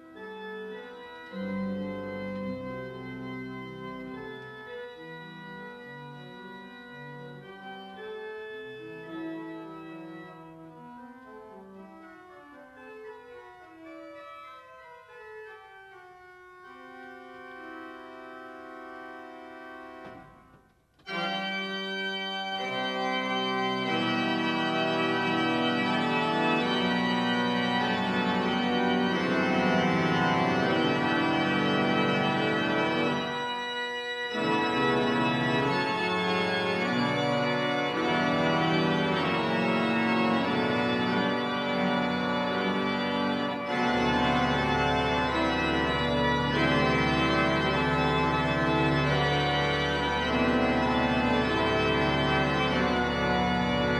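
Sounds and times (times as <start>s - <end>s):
pipe organ chords: 0.0s - 53.9s
deep organ pedal note: 0.4s - 10.3s, 21.1s - 33.6s, 34.3s - 53.9s.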